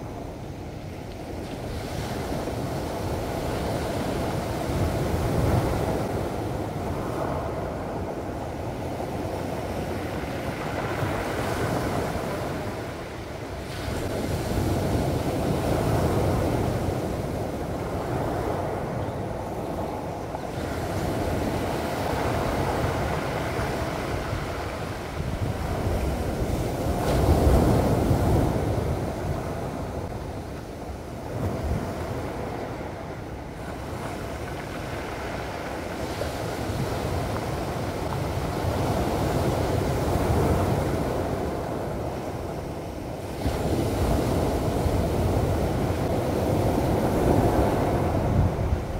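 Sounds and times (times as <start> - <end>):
waves breaking on pebble beach: 1.3 - 30.2, 30.8 - 48.9.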